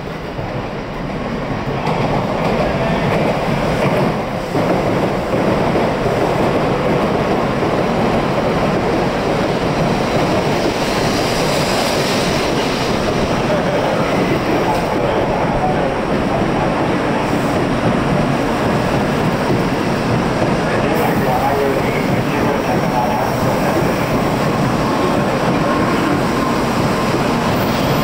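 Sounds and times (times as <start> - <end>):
train rushing past: 0.0 - 28.0.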